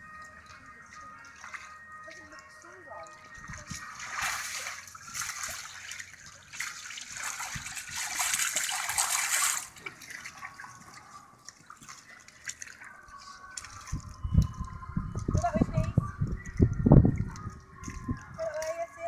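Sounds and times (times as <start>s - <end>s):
pool water sloshing and splashing: 0.0s - 14.6s, 15.4s - 19.0s
water drips: 0.0s - 19.0s.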